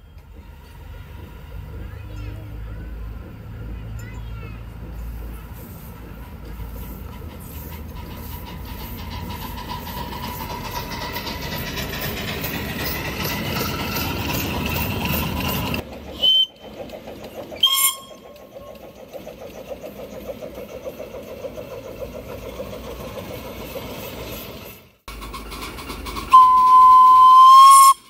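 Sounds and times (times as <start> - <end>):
steam locomotive running: 0.0 - 28.0
train whistle toots: 16.2 - 16.7, 17.6 - 18.6, 26.3 - 28.0.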